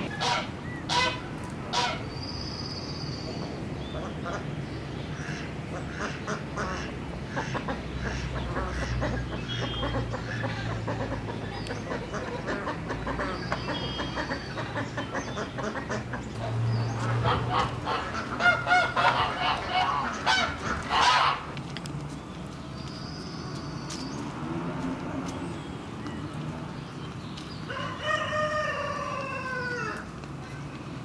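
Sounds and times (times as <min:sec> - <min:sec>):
fowl calling loudly: 0:00.1 - 0:02.0, 0:17.2 - 0:21.4.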